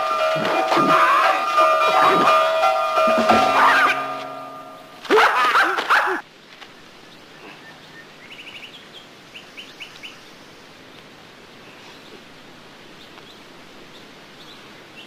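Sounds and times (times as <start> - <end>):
person yelling high wailing cries: 0.4 - 2.4, 3.2 - 4.2.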